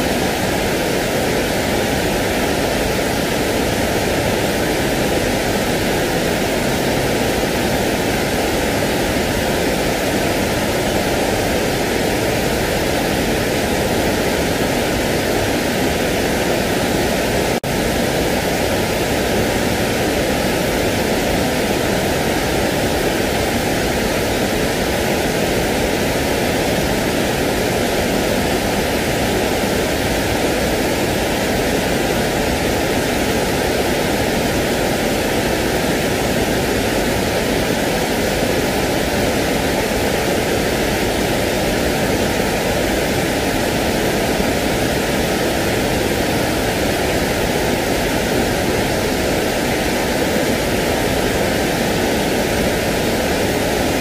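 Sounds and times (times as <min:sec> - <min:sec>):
steady white noise: 0:00.0 - 0:54.0.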